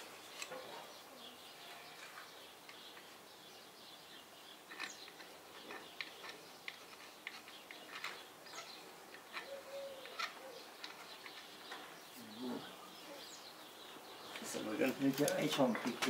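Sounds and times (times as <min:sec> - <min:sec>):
pigeon cooing: 0:09.3 - 0:10.8.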